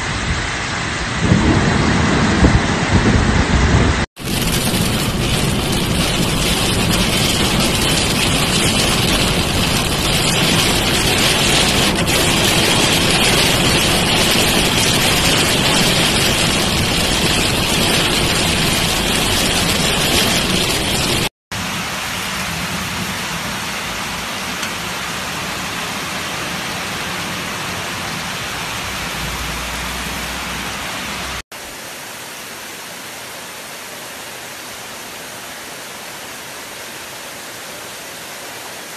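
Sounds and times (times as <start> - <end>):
road noise: 0.0 - 31.4
heavy rain: 0.0 - 38.9
rain on car windscreen: 1.3 - 26.8.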